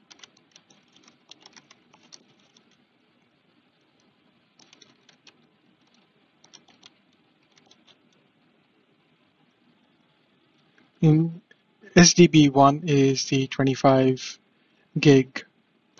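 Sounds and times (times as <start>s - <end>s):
faint keyboard typing: 0.0s - 8.4s.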